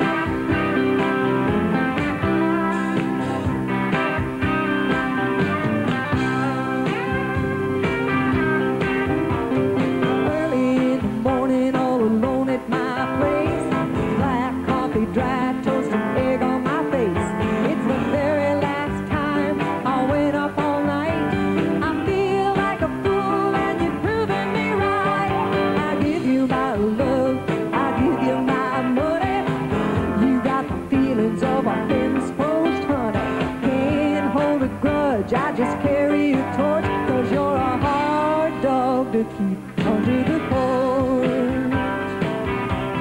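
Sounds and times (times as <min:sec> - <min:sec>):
band playing country music: 0:00.0 - 0:43.0
electric bass: 0:00.0 - 0:43.0
guitar: 0:00.0 - 0:43.0
woman singing: 0:10.0 - 0:42.1.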